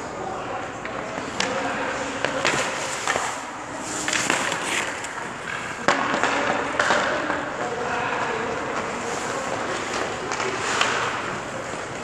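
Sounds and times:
stick and puck clacks: 0:00.8 - 0:12.0
skate blades scraping ice: 0:01.2 - 0:06.9, 0:08.6 - 0:12.0.

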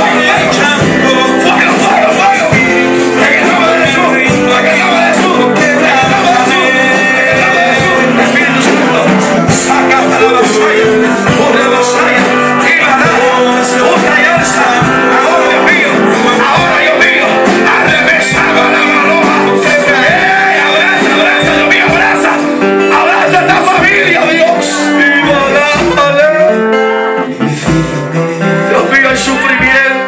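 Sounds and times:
drums and cymbals: 0:00.0 - 0:22.6, 0:27.6 - 0:28.3
strummed acoustic guitar: 0:00.0 - 0:30.0.

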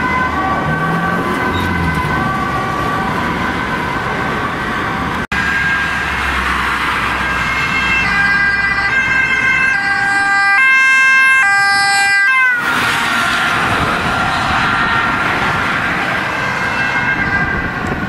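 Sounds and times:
ambulance two-tone siren: 0:00.0 - 0:18.0
rush of passing vehicle: 0:11.9 - 0:18.0.

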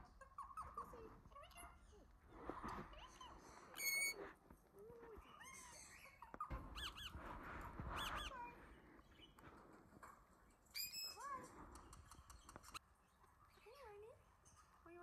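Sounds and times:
parakeet chirping: 0:03.7 - 0:04.2, 0:05.2 - 0:07.2, 0:08.0 - 0:08.5.

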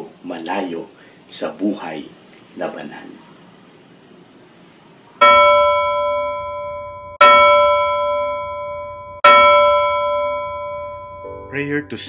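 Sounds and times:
bell ringing: 0:05.2 - 0:12.0.

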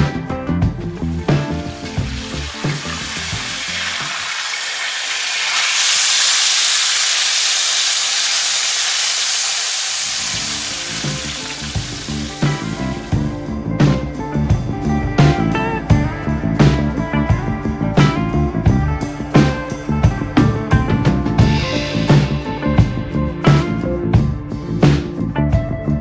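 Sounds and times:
background music: 0:00.0 - 0:05.4, 0:09.7 - 0:26.0
meat sizzling in a frying pan: 0:01.0 - 0:13.3.

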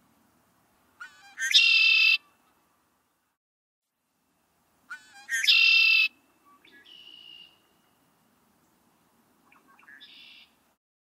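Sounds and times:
bird song with trill: 0:01.0 - 0:02.6, 0:04.9 - 0:08.8, 0:09.4 - 0:10.6.

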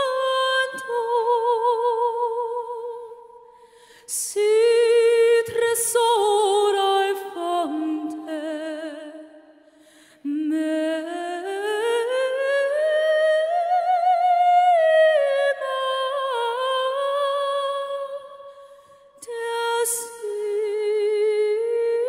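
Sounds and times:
soprano woman singing: 0:00.0 - 0:22.0.

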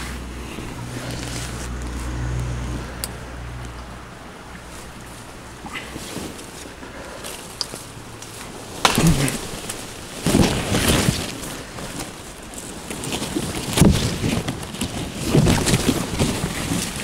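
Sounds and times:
leafy branches rustling: 0:00.0 - 0:17.0
tree trunk cracking: 0:04.5 - 0:17.0.

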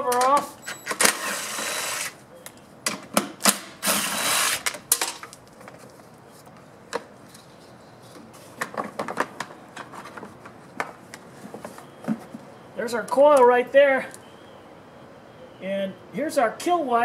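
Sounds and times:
cordless impact driver running: 0:03.8 - 0:04.7.

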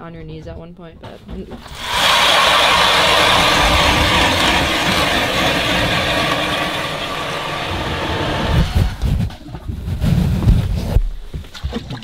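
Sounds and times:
power ice auger drilling: 0:01.6 - 0:09.1.

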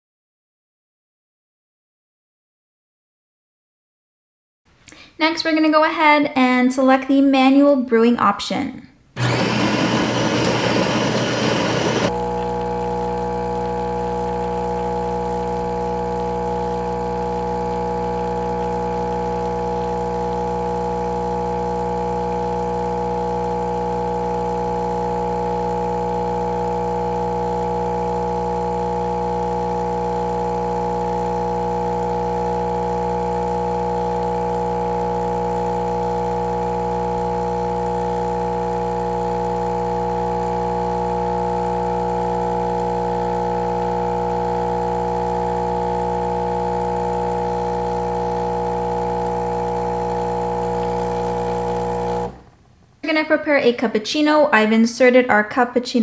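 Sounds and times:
espresso machine pump humming: 0:09.2 - 0:52.5.

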